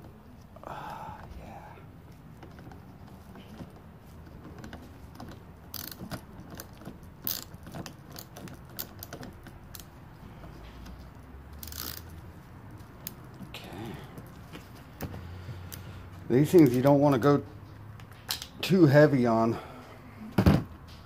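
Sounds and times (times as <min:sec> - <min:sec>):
socket ratchet clicking: 0:04.6 - 0:10.0, 0:11.5 - 0:12.2.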